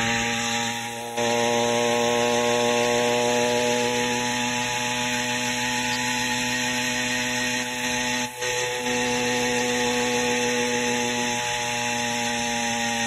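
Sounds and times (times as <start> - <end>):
small bicycle engine running: 0.0 - 13.0.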